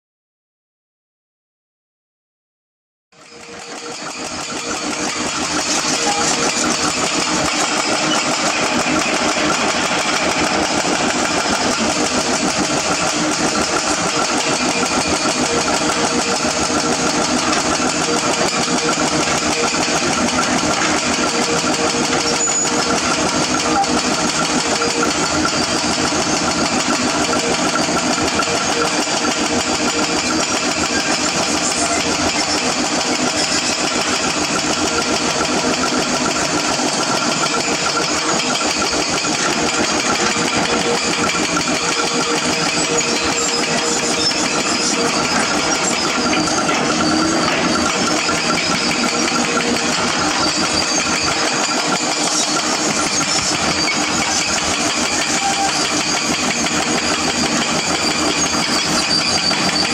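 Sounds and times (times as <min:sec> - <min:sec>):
excavator diesel engines under load: 0:03.2 - 0:59.9.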